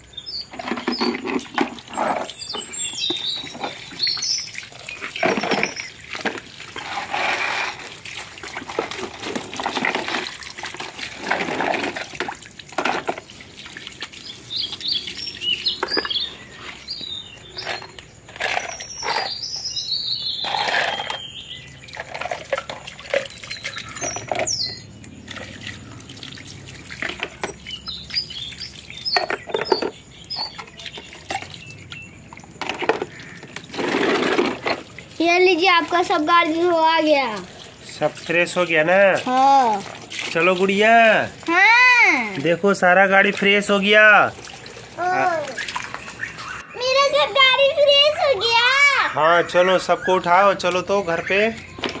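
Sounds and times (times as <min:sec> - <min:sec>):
water splashing and dripping: 0:00.0 - 0:52.0.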